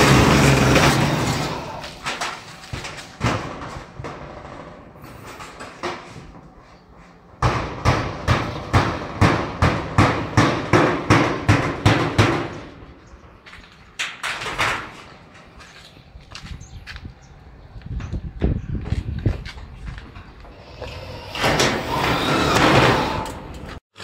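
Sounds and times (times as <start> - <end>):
hammer blows: 7.1 - 12.9, 20.5 - 23.8.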